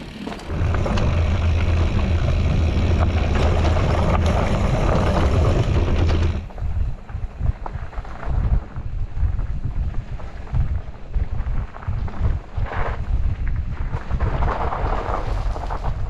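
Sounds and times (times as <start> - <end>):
clicks and rattles: 0.0 - 6.6
bike rumbling over rough trail: 0.0 - 16.0.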